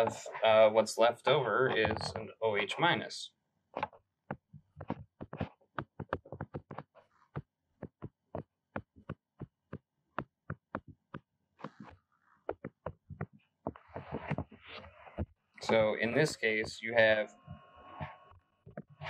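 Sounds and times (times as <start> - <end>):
stylus tapping on tablet screen: 3.8 - 11.9, 12.5 - 15.9.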